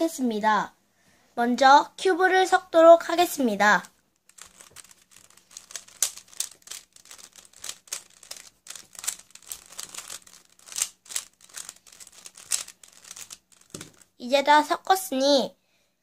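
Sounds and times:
puzzle cube clicking: 3.8 - 14.2.

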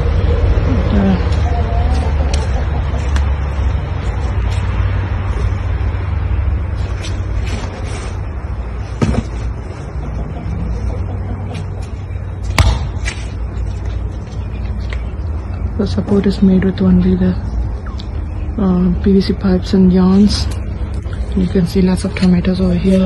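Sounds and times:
low rumble: 0.0 - 23.0.

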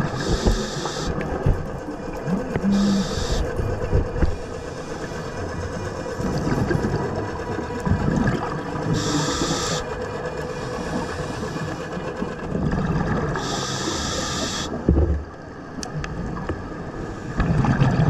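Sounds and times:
regulator hissing inhalations: 0.2 - 1.2, 2.7 - 3.5, 8.9 - 9.8, 13.4 - 14.7
exhaled bubbles bubbling: 7.8 - 9.8, 12.5 - 13.6, 17.4 - 18.0.

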